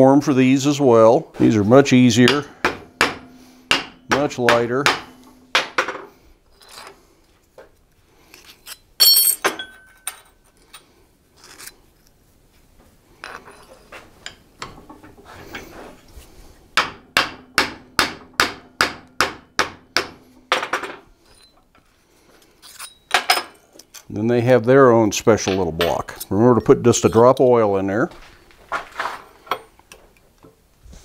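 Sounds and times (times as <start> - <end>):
hammer striking metal: 2.2 - 6.0
clinks of metal being handled: 8.3 - 11.8, 13.2 - 15.7, 20.5 - 21.8, 22.4 - 24.1, 25.5 - 27.8.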